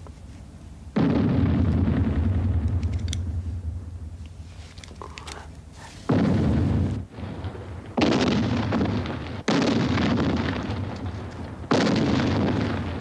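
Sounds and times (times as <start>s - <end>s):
heavy explosions rumbling: 1.0s - 4.2s, 6.0s - 13.0s.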